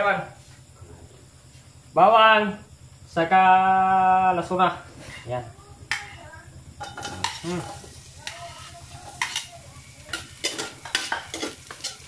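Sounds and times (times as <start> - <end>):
onions sizzling in oil: 5.0 - 12.0.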